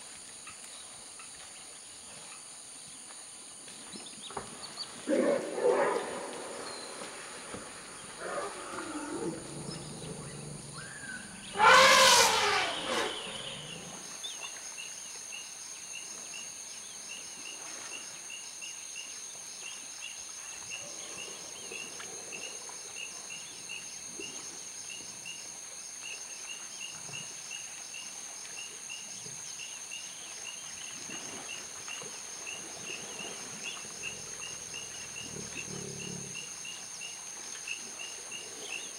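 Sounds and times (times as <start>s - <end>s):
elephant roar: 8.1s - 14.0s
elephant low call: 8.2s - 14.0s.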